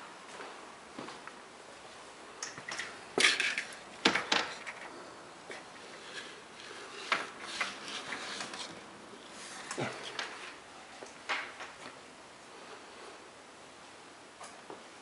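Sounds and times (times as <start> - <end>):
window blind slats clacking: 6.0 - 10.6.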